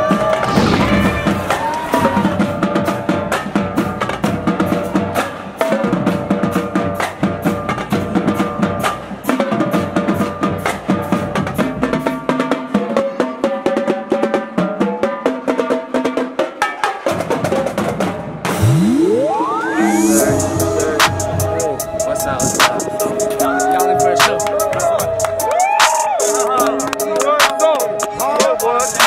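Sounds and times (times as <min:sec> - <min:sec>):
drum beat with sustained tones: 0:00.0 - 0:29.0.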